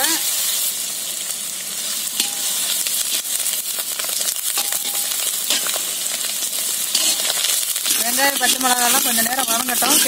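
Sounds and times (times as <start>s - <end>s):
vegetables sizzling in hot oil: 0.0s - 10.0s
ladle scraping a wok: 6.8s - 10.0s.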